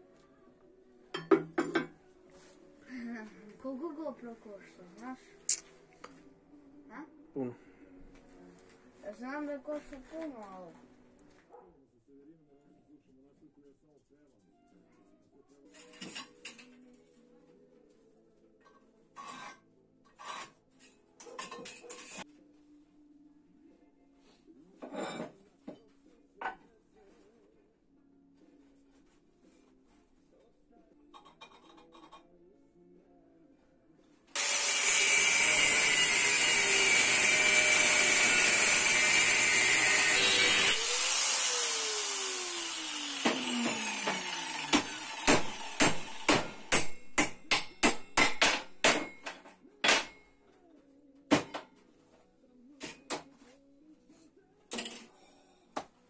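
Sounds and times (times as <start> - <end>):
faint scraping strokes: 19.2 - 21.0
electric power tool whining: 34.4 - 46.7.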